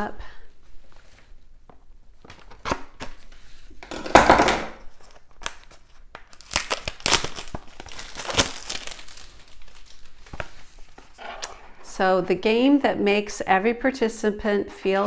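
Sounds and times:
wrapper tearing: 4.8 - 11.8
wrapper crinkling: 4.9 - 11.9.

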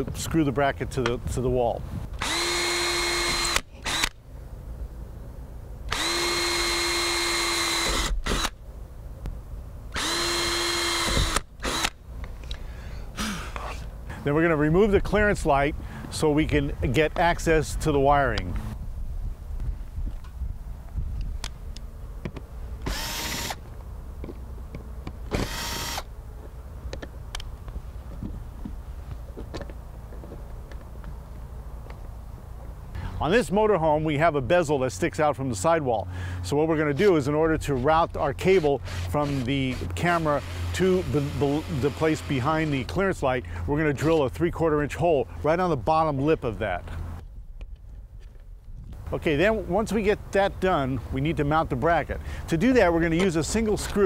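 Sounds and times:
cordless drill running: 2.2 - 4.2, 5.9 - 8.6, 10.0 - 12.0, 22.8 - 23.6, 25.3 - 26.1, 38.6 - 42.8.

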